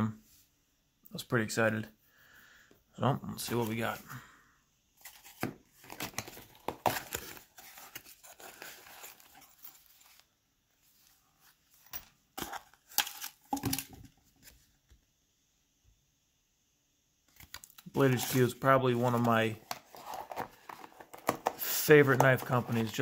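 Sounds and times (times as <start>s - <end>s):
cardboard flaps scraping and rustling: 18.0s - 23.0s.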